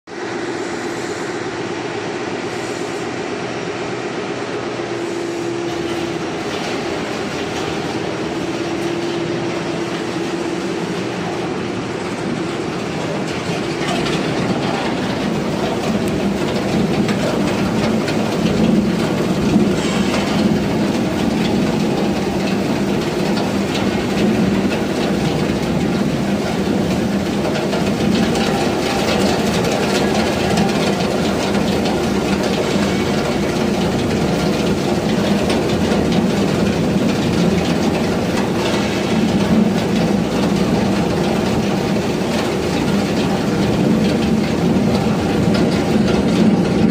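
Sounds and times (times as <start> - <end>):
shredder machine drone: 0.1 - 46.9.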